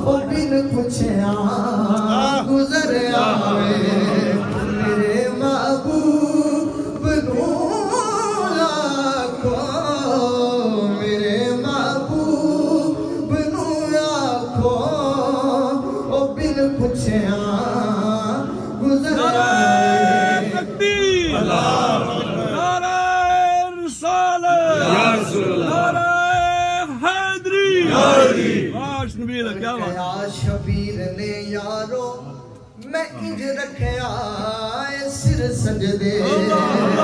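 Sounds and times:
man singing into a microphone: 0:00.0 - 0:21.7, 0:29.9 - 0:37.0.

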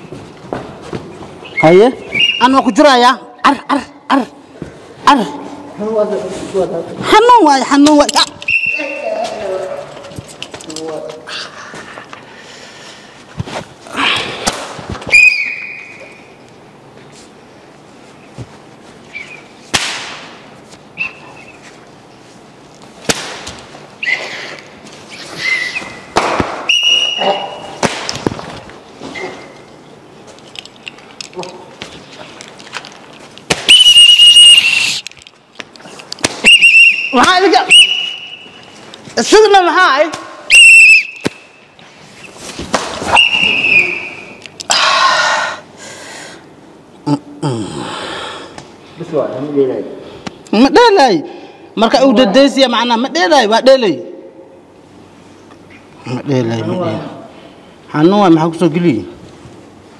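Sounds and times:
whistle blasts: 0:01.6 - 0:02.8, 0:08.4 - 0:09.1, 0:15.1 - 0:16.3, 0:26.6 - 0:27.7, 0:33.7 - 0:35.0, 0:36.4 - 0:38.7, 0:40.5 - 0:41.6, 0:43.1 - 0:44.4
sharp whip-like cracks: 0:19.7 - 0:20.4, 0:23.0 - 0:23.6, 0:26.1 - 0:27.1, 0:27.7 - 0:28.3.

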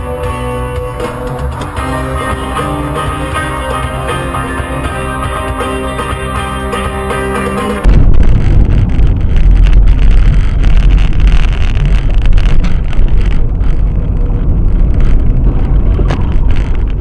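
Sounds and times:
road and engine rumble: 0:00.0 - 0:17.0.

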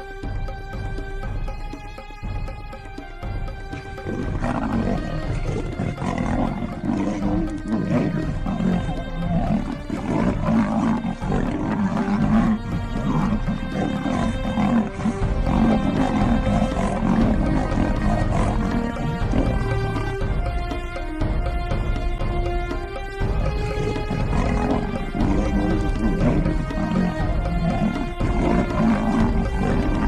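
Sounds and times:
background music: 0:00.0 - 0:30.0
big cats roaring and snarling: 0:03.9 - 0:20.7, 0:23.3 - 0:30.0.

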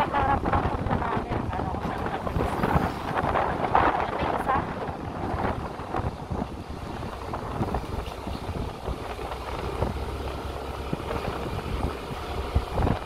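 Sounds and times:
road rumble: 0:00.0 - 0:13.0
motorcycle engine running: 0:03.2 - 0:13.0.

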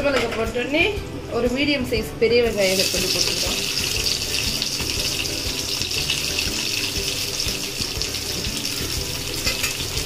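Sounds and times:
onions sizzling in hot oil: 0:02.5 - 0:10.0.

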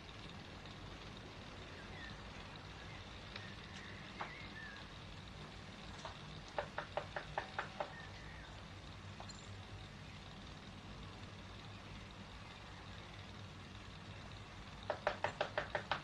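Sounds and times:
steady low hum: 0:00.0 - 0:16.0
sharp knocks: 0:06.5 - 0:08.0, 0:14.9 - 0:16.0.

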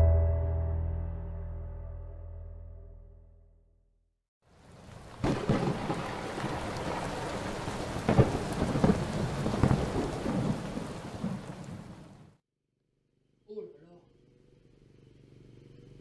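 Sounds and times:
rain: 0:04.4 - 0:12.4
thunder rumbling and cracking: 0:04.8 - 0:12.3.

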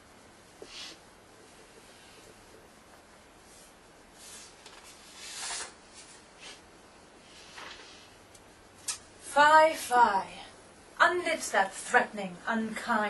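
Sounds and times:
paper pages rustling: 0:04.2 - 0:06.2, 0:07.4 - 0:08.1.

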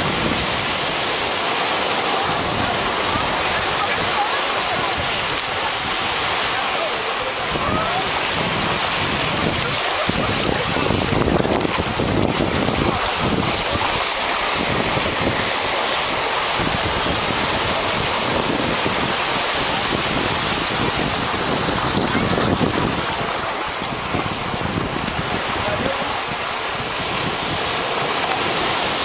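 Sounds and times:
wind buffeting microphone: 0:00.0 - 0:00.9, 0:07.4 - 0:29.0
waves washing up beach: 0:00.0 - 0:29.0.

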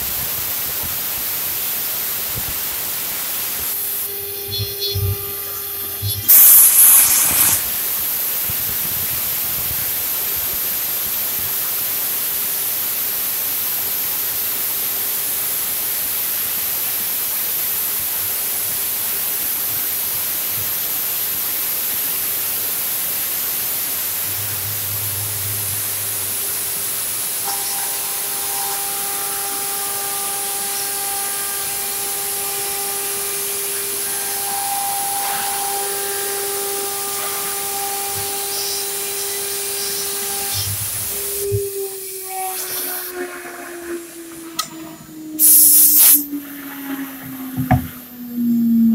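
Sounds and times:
steady tone: 0:23.2 - 0:48.9
wood router spindle whining: 0:23.9 - 0:45.4.

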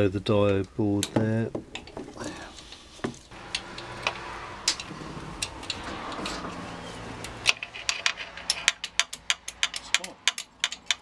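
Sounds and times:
metallic clicks of tools: 0:03.5 - 0:06.4, 0:07.2 - 0:11.0.

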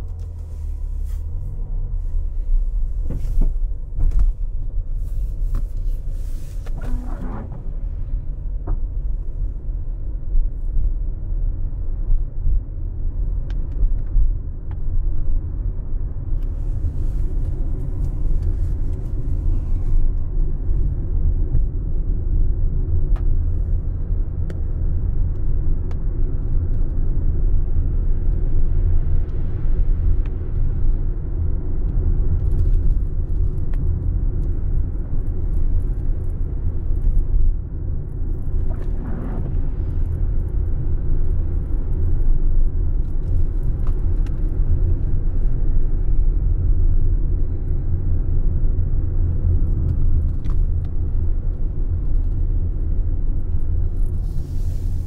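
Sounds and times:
car driving on wet road: 0:00.0 - 0:09.6, 0:16.4 - 0:21.6, 0:31.9 - 0:47.3, 0:48.8 - 0:55.0.

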